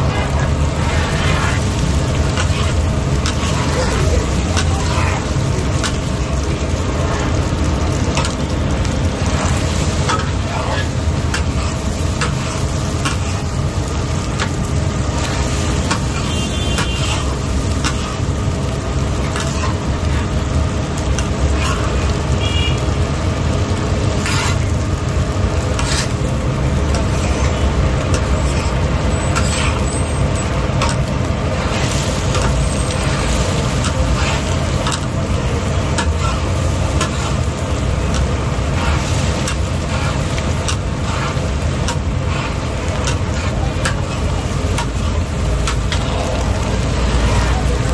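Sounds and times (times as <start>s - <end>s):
kebabs sizzling in hot fat: 0.0s - 47.9s
low rumble of street noise: 0.0s - 47.9s.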